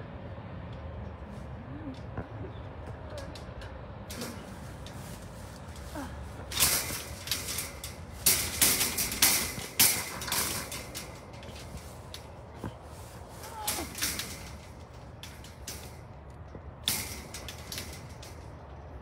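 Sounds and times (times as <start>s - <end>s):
metal wire parts rattling: 4.1s - 19.0s.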